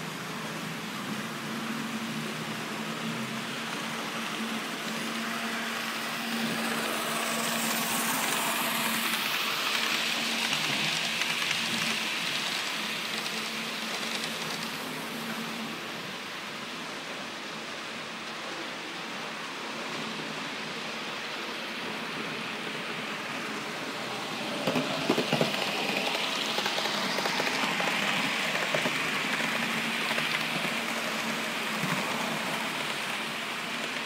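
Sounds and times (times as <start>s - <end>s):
model train motor hum: 0.3s - 16.0s, 22.8s - 34.0s
wheels rolling on rails: 0.3s - 16.4s, 21.5s - 34.0s.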